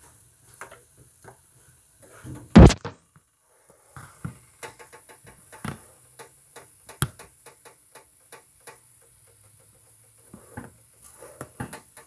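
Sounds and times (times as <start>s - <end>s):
sharp knock: 2.6s - 2.9s.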